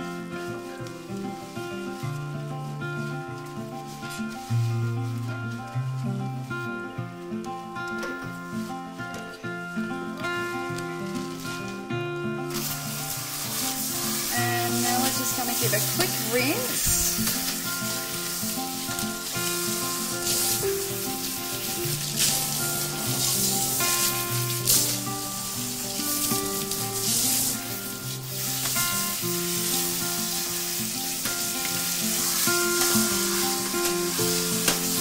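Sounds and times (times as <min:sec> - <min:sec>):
soft background music: 0:00.0 - 0:35.0
water spraying from shower head: 0:12.5 - 0:35.0.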